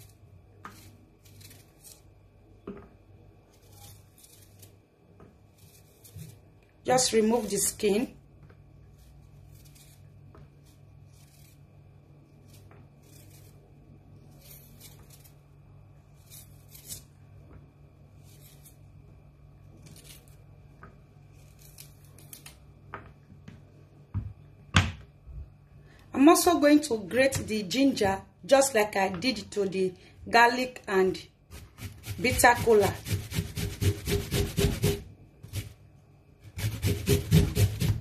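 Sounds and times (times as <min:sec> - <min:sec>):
knife scraping ginger skin: 0:00.0 - 0:02.2, 0:03.4 - 0:04.8, 0:05.4 - 0:07.8, 0:08.8 - 0:17.2, 0:18.1 - 0:19.0, 0:19.7 - 0:20.5, 0:21.2 - 0:22.7, 0:31.5 - 0:35.8, 0:36.4 - 0:38.0.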